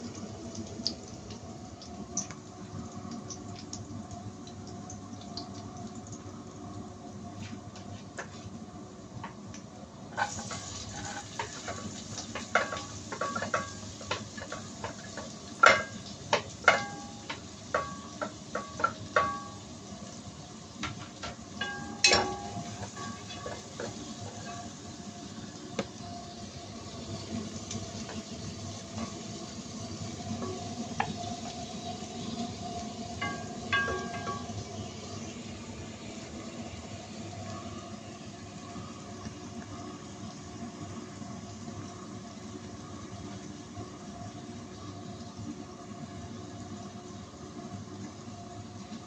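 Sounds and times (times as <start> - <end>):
butter sizzling in a pot: 10.1 - 38.0
utensils clinking on pot and plate: 10.2 - 19.6, 20.8 - 24.7, 33.2 - 34.6.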